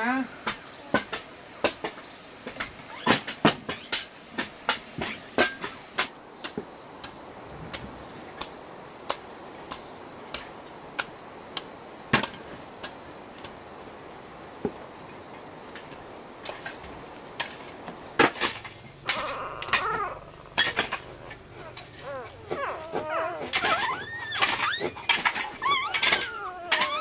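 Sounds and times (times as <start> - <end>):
animal squealing: 2.9 - 4.0, 19.0 - 27.0.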